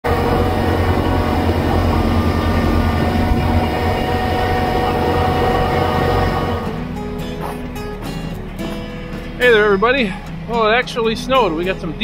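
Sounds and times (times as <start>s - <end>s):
snowblower mechanical whine: 0.0s - 7.4s
tractor diesel engine running: 0.0s - 11.9s.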